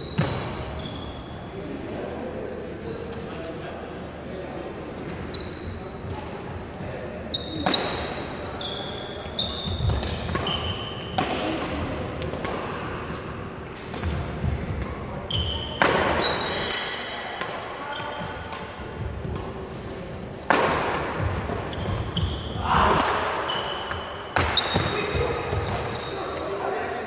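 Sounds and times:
shoes squeaking: 0.0 - 1.6, 5.2 - 6.2, 7.2 - 11.2, 14.0 - 17.0, 17.8 - 20.6, 21.2 - 27.0
rackets hitting shuttlecock: 7.6 - 8.2, 9.8 - 17.6, 18.4 - 25.9.

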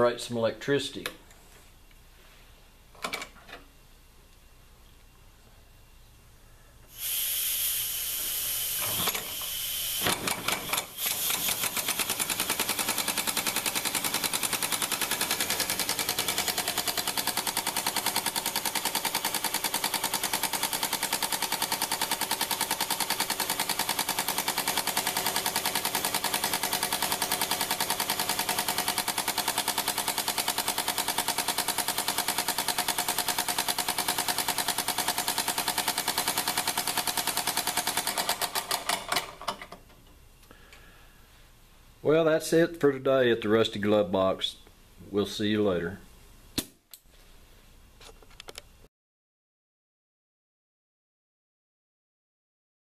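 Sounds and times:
air hissing: 6.8 - 12.0.

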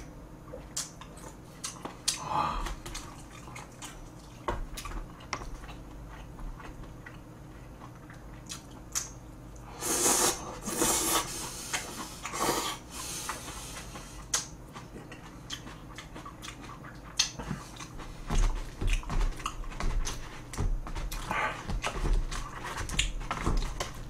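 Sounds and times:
wet chewing clicks: 0.6 - 9.7, 13.3 - 22.0
person slurping noodles: 9.7 - 13.8.

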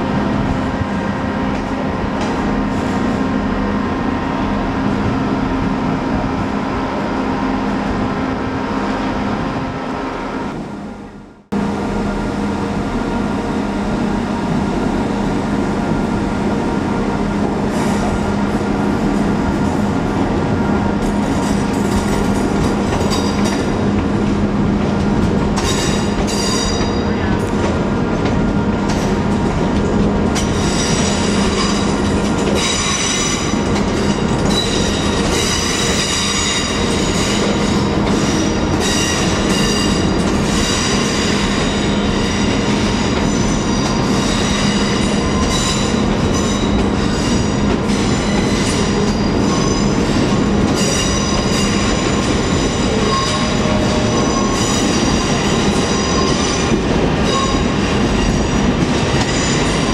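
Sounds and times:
moving train rumble: 0.0 - 59.9
train wheels squealing: 25.6 - 27.4, 30.4 - 59.9.

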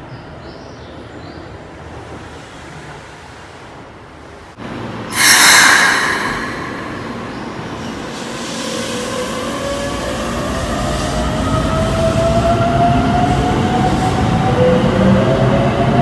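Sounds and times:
electric train rumbling past: 1.6 - 16.0
train inverter whine: 4.6 - 11.9.

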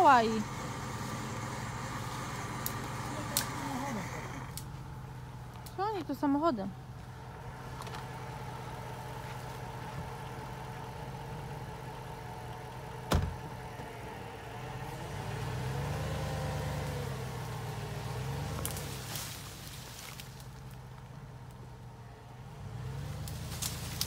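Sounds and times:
electric winch humming: 0.0 - 5.3.

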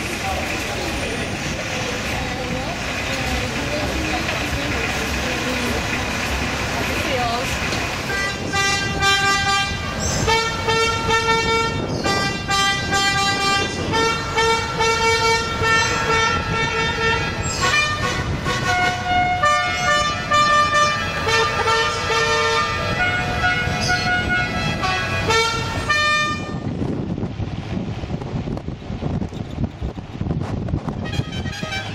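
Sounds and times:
car running on the road: 0.0 - 31.9
musical car horn playing a tune: 8.1 - 26.7, 31.0 - 31.9.

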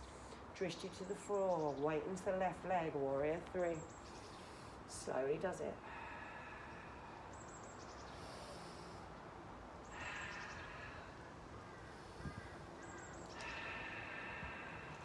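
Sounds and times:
person breathing through nose: 9.8 - 15.0.

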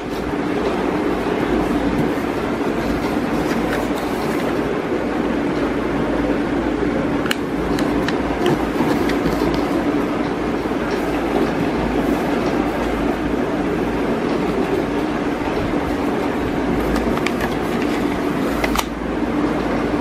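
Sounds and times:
rumbling background noise: 0.0 - 20.0
paper being creased: 1.6 - 4.6.

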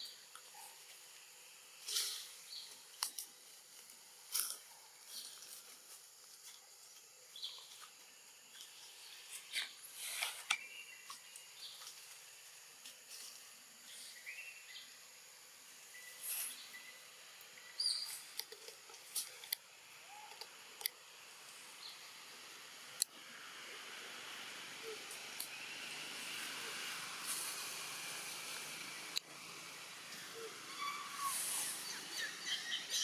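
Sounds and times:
faint steady hiss: 0.0 - 33.0
rustles and snaps: 1.8 - 8.0.

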